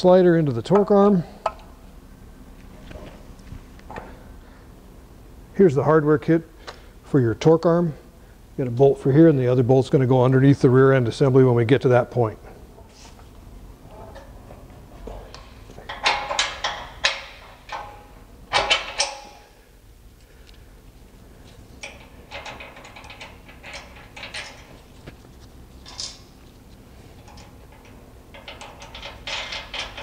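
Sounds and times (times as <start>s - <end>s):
metal hardware clicking and clinking: 13.9s - 19.6s, 21.8s - 24.9s, 25.8s - 26.4s, 27.1s - 30.0s.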